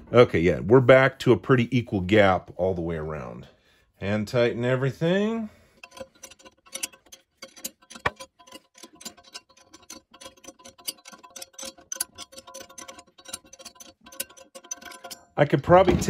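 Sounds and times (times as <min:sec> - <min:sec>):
wrench clinking on bolts: 0:05.7 - 0:15.8.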